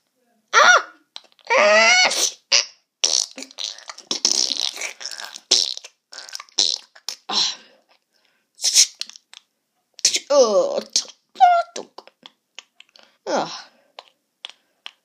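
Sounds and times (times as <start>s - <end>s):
comic fart noises: 1.2s - 7.3s.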